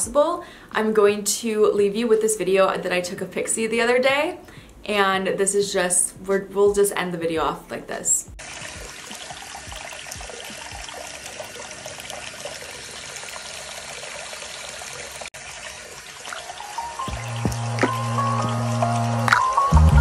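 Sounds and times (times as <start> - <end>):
water running into sink basin: 8.4 - 19.4.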